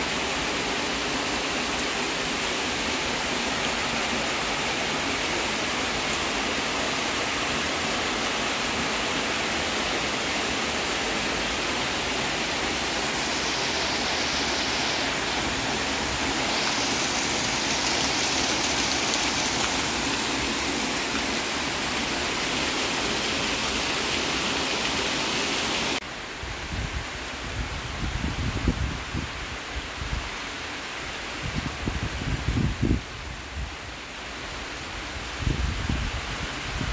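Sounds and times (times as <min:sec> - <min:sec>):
heavy rain falling: 0:00.0 - 0:26.0
water pouring off a roof: 0:12.8 - 0:26.0.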